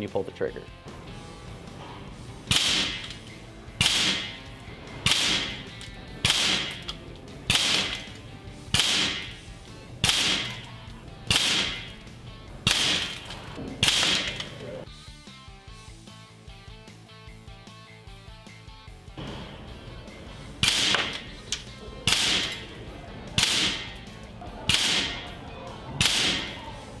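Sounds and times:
quiet background music: 0:00.0 - 0:27.0
sharp whip-like shots: 0:02.5 - 0:03.0, 0:03.8 - 0:04.4, 0:05.0 - 0:05.6, 0:06.2 - 0:06.8, 0:07.5 - 0:08.1, 0:08.7 - 0:09.4, 0:10.0 - 0:10.6, 0:11.3 - 0:11.9, 0:12.7 - 0:13.2, 0:20.6 - 0:21.1, 0:22.1 - 0:22.6, 0:23.4 - 0:23.9, 0:24.7 - 0:25.2, 0:26.0 - 0:26.5.

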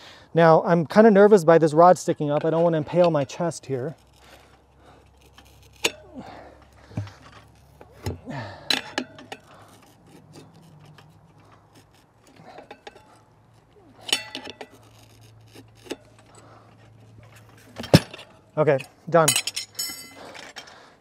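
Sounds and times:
tire levers scraping on rim: 0:00.9 - 0:21.0
rubber rubbing on metal: 0:09.4 - 0:17.8.

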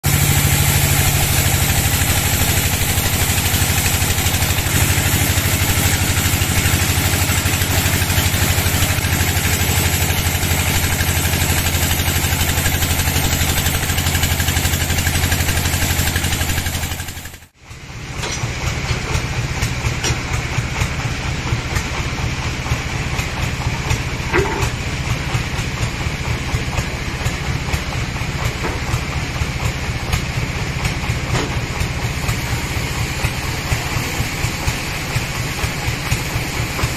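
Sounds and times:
bandsaw sawing logs: 0:00.1 - 0:17.5.

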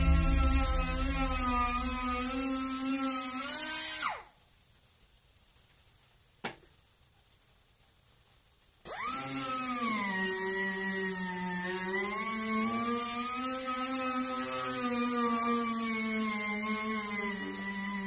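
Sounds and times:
exhaust air hiss: 0:00.0 - 0:03.0
air sander whining: 0:00.0 - 0:03.1, 0:08.9 - 0:18.0.

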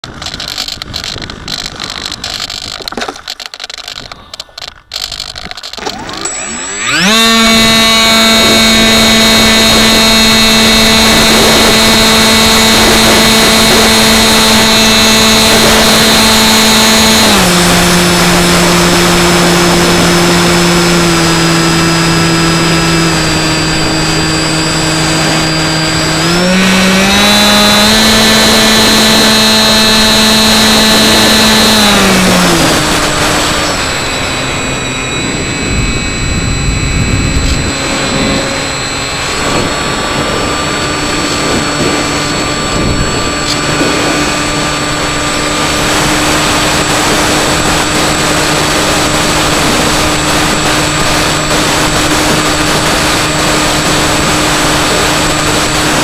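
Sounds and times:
handling noise: 0:00.0 - 0:10.5
high-pitched motor whine: 0:00.0 - 0:56.0
wind rush: 0:00.0 - 0:56.0.

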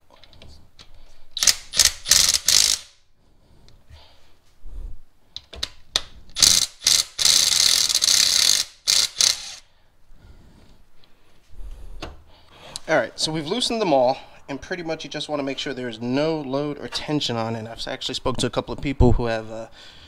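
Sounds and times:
electric ratchet running: 0:01.4 - 0:03.0, 0:06.4 - 0:09.6.

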